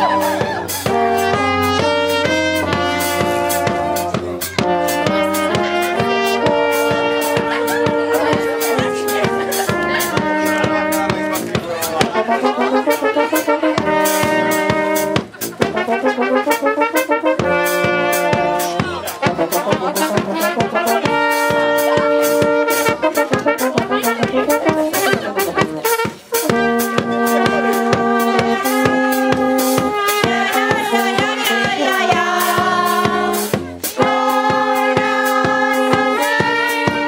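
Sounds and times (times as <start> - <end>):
brass band playing folk dance tune: 0.0 - 37.0.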